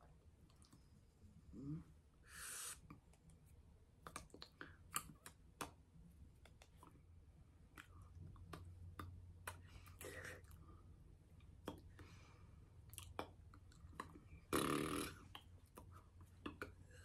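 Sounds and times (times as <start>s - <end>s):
short breathy hiss: 2.3s - 2.9s.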